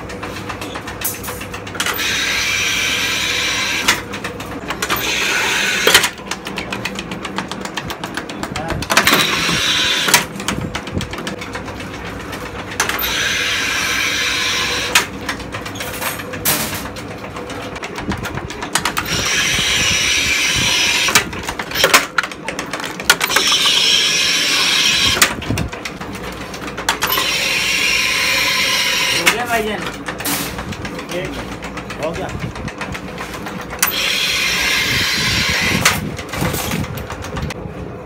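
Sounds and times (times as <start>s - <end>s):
drawing machine hissing mechanical noise: 1.8s - 4.0s, 4.8s - 6.2s, 9.0s - 10.3s, 12.8s - 15.1s, 18.9s - 22.0s, 23.2s - 25.3s, 27.0s - 30.6s, 33.8s - 36.8s.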